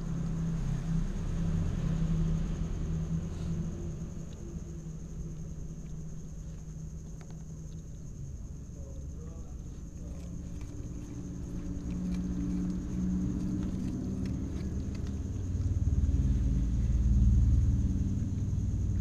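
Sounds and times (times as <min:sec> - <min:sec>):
low rumble: 0:00.0 - 0:19.0
cats chewing: 0:03.3 - 0:16.8.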